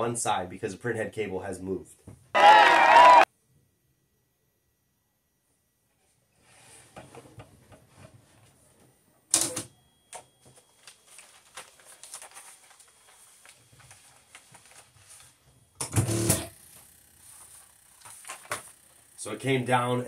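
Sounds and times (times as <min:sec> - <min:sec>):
printer running: 0:15.8 - 0:19.1.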